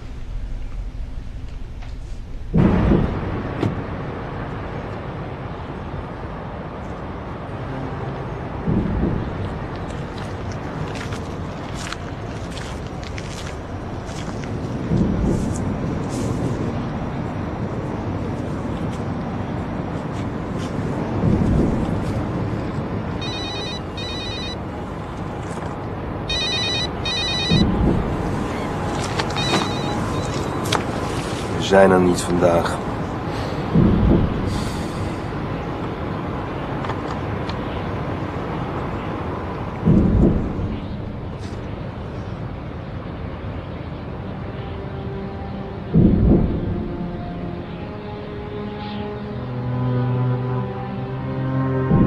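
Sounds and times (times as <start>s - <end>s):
low rumble: 0.0s - 7.8s, 32.7s - 44.3s
low outdoor rumble: 0.0s - 52.0s
rush of wind-like noise: 0.0s - 52.0s
electronic telephone ringing: 23.2s - 24.7s, 26.3s - 27.7s, 29.3s - 30.4s.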